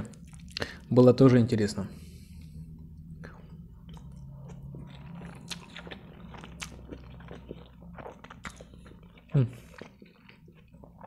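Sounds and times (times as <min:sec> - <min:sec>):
man chewing wet smacks: 0:03.3 - 0:11.0.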